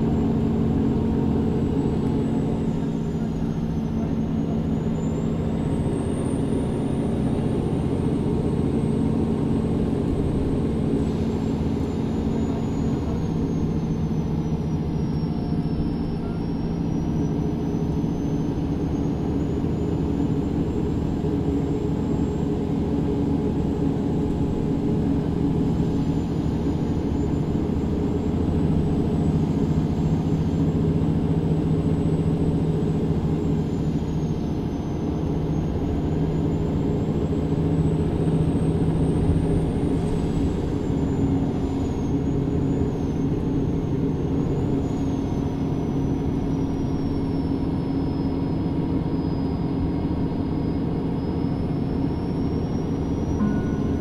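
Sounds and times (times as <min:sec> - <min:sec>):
bus diesel engine running: 0:00.0 - 0:54.0
thin high whine: 0:51.4 - 0:54.0.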